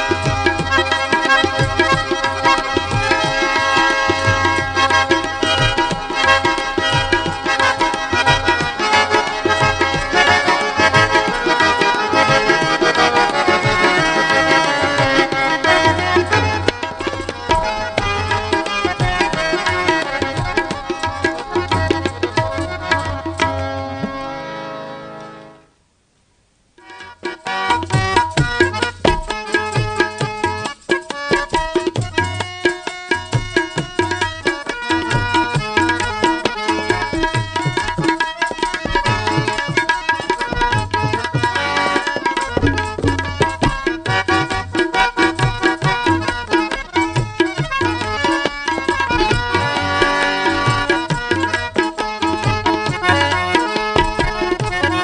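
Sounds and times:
fast tabla drumming: 0.0s - 24.3s, 26.8s - 55.0s
harmonium melody: 0.0s - 25.8s, 26.8s - 55.0s
tabla bass strokes: 27.8s - 46.4s.

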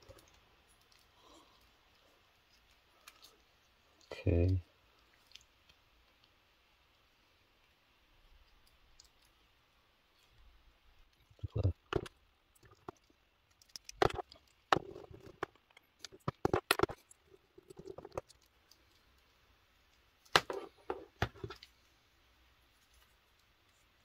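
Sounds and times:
soft rustling: 10.0s - 24.0s.

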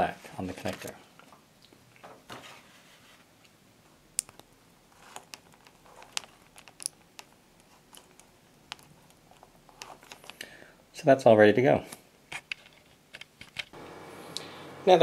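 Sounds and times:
wire terminals clicking into connector: 5.2s - 7.3s.

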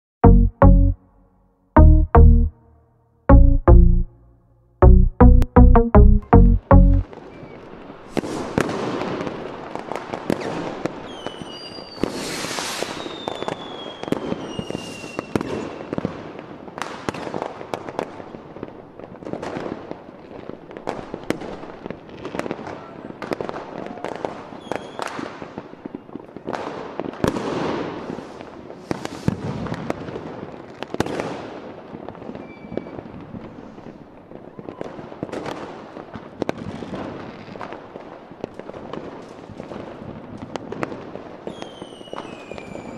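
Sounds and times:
falling firework whistles: 7.3s - 9.0s, 10.3s - 16.1s, 24.6s - 25.3s, 28.0s - 29.8s, 32.3s - 33.8s, 41.5s - 42.9s.

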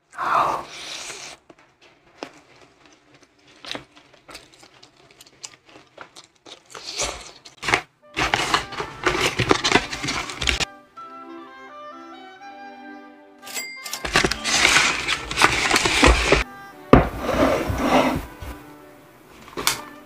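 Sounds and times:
tearing of meat: 0.7s - 10.7s
paperboard boxes crackling: 0.8s - 10.7s, 14.0s - 18.7s
chewing clicks: 1.3s - 7.6s.

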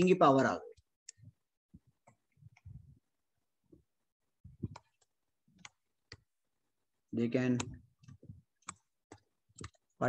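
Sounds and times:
stylus tapping on a tablet: 4.4s - 6.3s.

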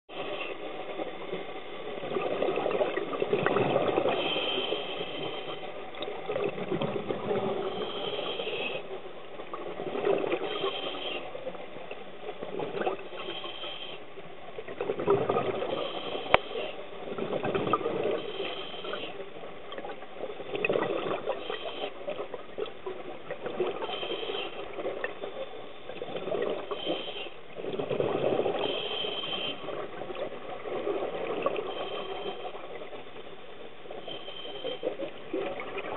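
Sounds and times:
regulator inhale hiss: 4.0s - 5.8s, 7.6s - 8.9s, 10.3s - 11.5s, 13.1s - 14.1s, 15.7s - 16.8s, 18.1s - 19.2s, 21.3s - 22.0s, 23.8s - 24.8s, 26.7s - 27.4s, 28.5s - 29.7s, 31.6s - 32.7s, 34.0s - 35.0s.

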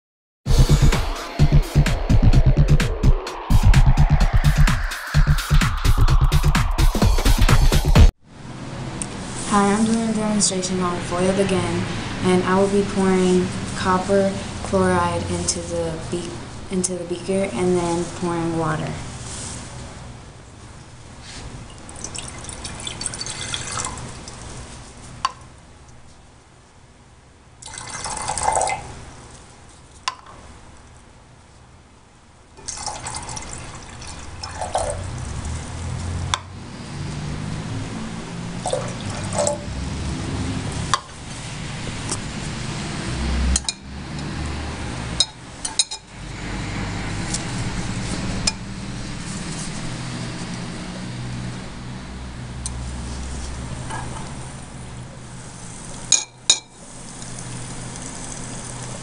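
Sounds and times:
liquid pouring into glass beaker: 21.7s - 24.4s, 27.6s - 28.9s, 32.6s - 35.3s, 38.6s - 39.6s.

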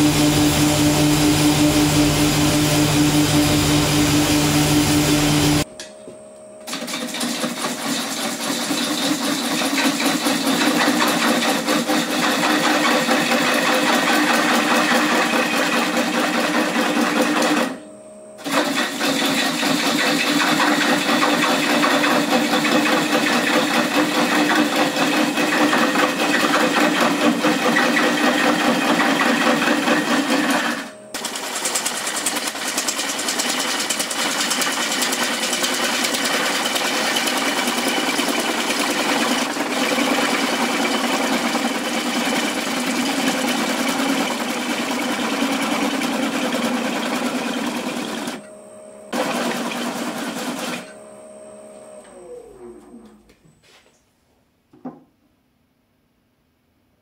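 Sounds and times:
gouge cutting spinning wood: 0.0s - 5.6s, 6.8s - 17.8s, 18.4s - 48.4s, 49.2s - 50.9s
lathe humming: 0.0s - 5.7s, 18.4s - 53.2s.

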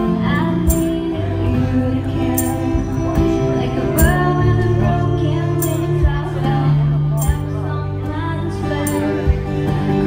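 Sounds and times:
acoustic guitar: 0.0s - 10.0s
woman singing into a microphone: 0.0s - 10.0s
tambourine hits: 0.7s - 1.0s, 2.4s - 2.7s.

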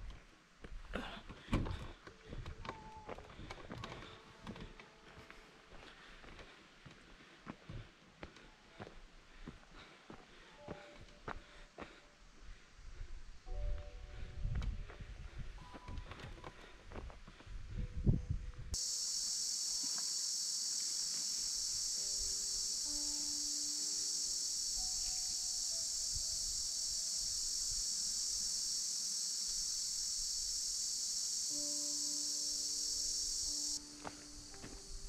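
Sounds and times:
soft background music notes: 13.3s - 18.8s, 21.8s - 28.1s, 31.5s - 35.0s
insect chorus drone: 18.8s - 35.0s.

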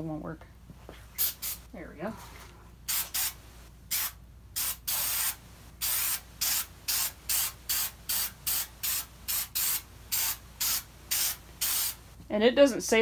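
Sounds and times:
aerosol can spraying: 1.2s - 1.6s, 2.9s - 12.0s.

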